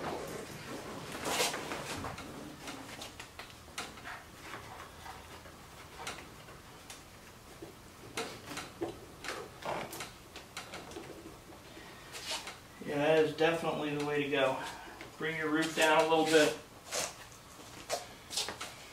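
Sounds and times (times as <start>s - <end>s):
clicks taps and rustling: 0.0s - 11.8s.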